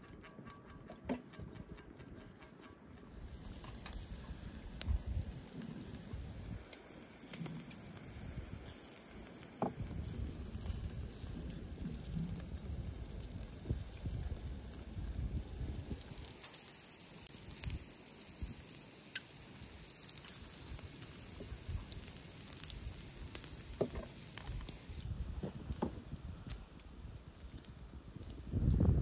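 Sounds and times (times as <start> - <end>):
sharp pops and crackles: 0.0 - 29.0
meat sizzling over charcoal: 3.0 - 29.0.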